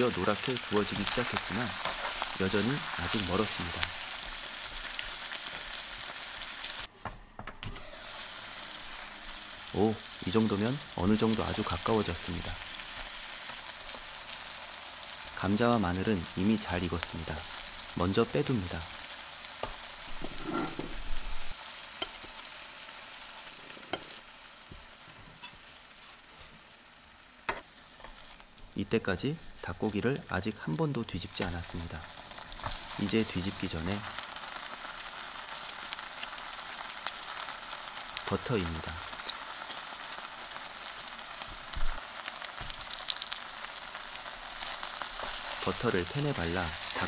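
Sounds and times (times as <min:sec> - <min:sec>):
food sizzling in a frying pan: 0:00.0 - 0:06.9, 0:07.8 - 0:47.0
metal tongs scraping a pan: 0:00.3 - 0:04.1, 0:19.6 - 0:22.3.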